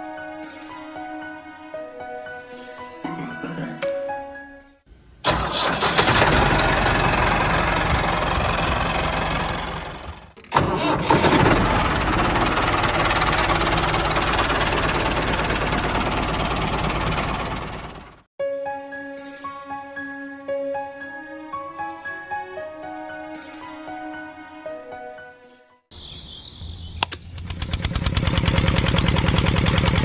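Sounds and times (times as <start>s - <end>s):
diesel tractor engine starting: 5.2s - 18.3s, 27.1s - 30.0s.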